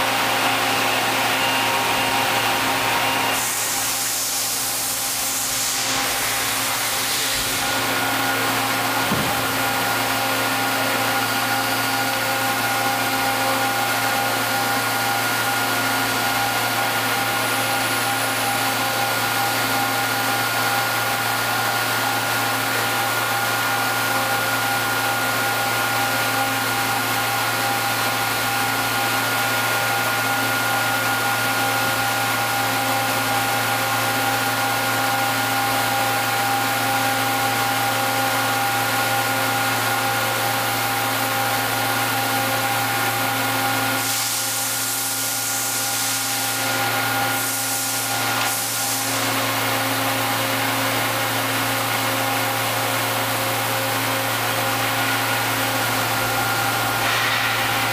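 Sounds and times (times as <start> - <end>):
machine hum with whining tones: 0.0 - 57.9
hiss: 3.4 - 7.9, 43.9 - 49.5, 57.0 - 57.9.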